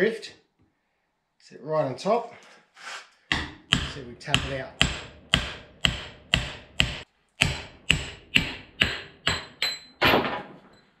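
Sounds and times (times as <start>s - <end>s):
hammer striking steel: 3.3s - 10.3s.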